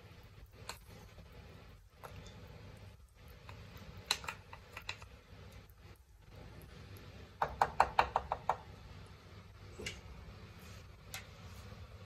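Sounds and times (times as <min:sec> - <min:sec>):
wooden spatula knocking on pan: 0:07.4 - 0:08.7.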